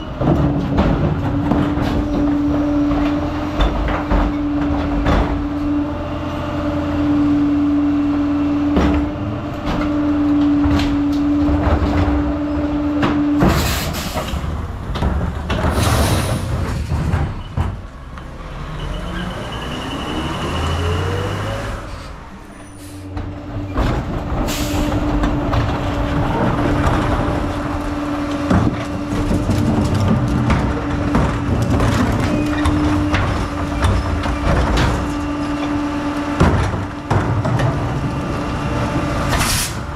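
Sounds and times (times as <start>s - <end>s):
garbage truck engine and hydraulics whine: 0.0s - 39.9s.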